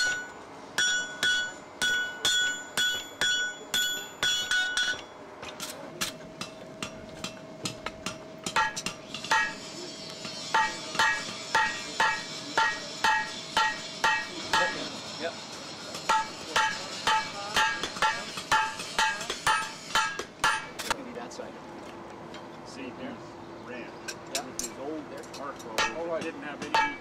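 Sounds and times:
hammer blows on hot steel: 0.0 - 5.1, 6.0 - 21.0, 25.7 - 27.0.

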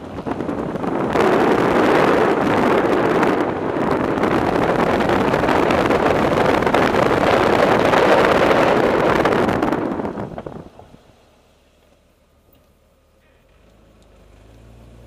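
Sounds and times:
wind rushing over microphone: 0.0 - 11.3.

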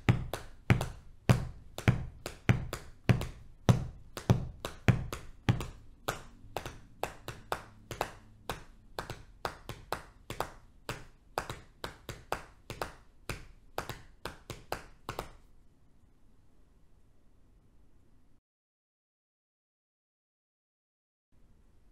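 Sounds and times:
hands patting on thighs: 0.0 - 15.5.

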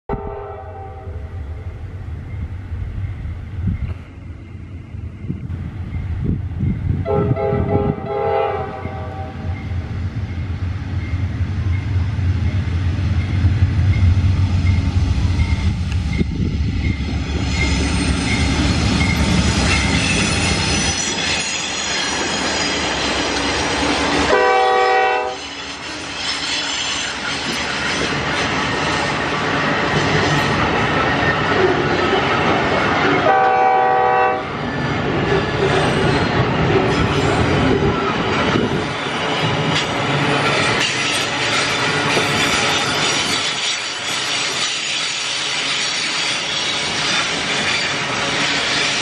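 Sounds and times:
train air horn blasts: 0.1 - 1.4, 7.0 - 9.6, 24.3 - 25.6, 33.2 - 34.6
diesel locomotive engine rumble: 0.1 - 49.0
wagon wheels clattering and squealing: 17.3 - 24.2, 25.4 - 33.2, 34.6 - 49.0.

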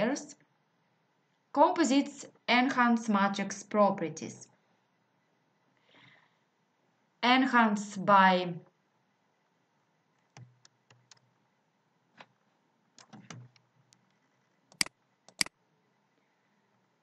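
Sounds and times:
computer mouse and key clicks: 10.1 - 11.3, 12.1 - 15.6.

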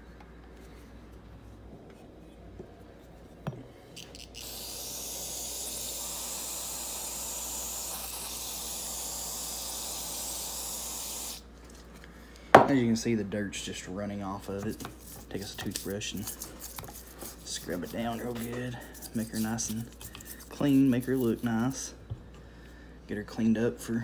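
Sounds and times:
aerosol spray hissing: 4.1 - 11.4.

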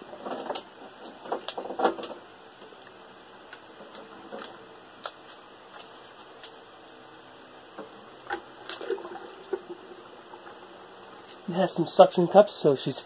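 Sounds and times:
water sloshing in a bucket: 8.2 - 11.5.

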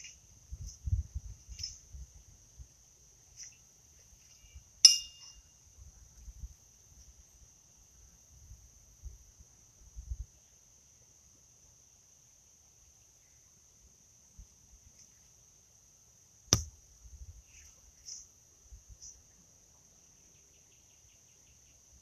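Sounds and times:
insects chirring: 0.0 - 22.0
horseshoes clinking together: 4.8 - 5.4.

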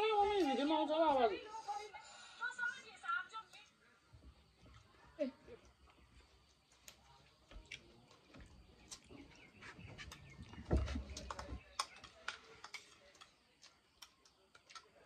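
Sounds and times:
metal spoons clicking on bowls: 11.1 - 15.0.

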